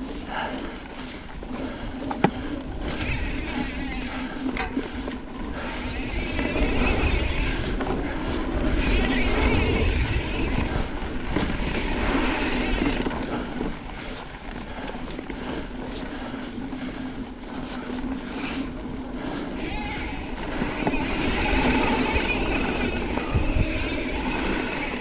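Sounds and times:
bike tyres rolling on dirt: 0.0s - 25.0s
bike knocks and rattles: 2.0s - 4.8s
wind rushing over microphone: 2.6s - 4.4s, 5.4s - 13.5s, 19.6s - 25.0s.

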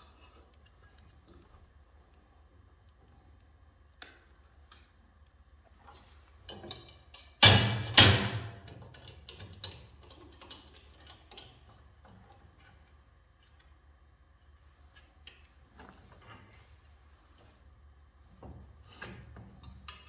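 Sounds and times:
metal clicks and clanks: 6.4s - 12.8s.

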